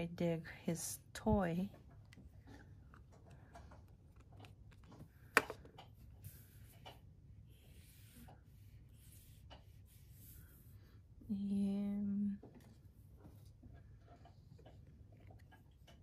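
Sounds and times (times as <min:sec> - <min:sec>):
cotton swab scratching on paper: 0:07.5 - 0:10.9.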